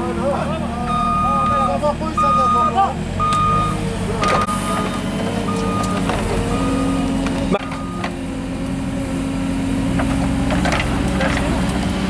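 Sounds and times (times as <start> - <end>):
diesel engine under load: 0.0 - 12.0
reversing alarm beeping: 0.8 - 8.1.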